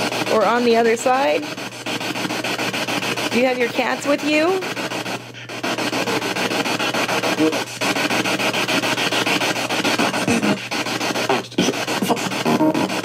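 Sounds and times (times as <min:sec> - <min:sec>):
radio static hiss with ticks: 0:11.2 - 0:13.0.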